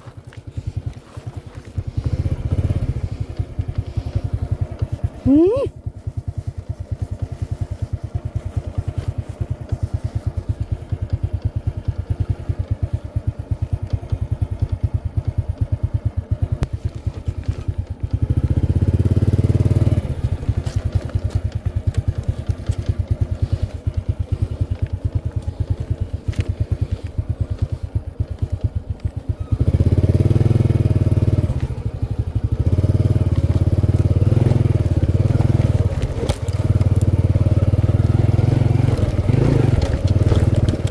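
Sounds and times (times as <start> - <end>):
motorcycle engine running: 0.0 - 40.9.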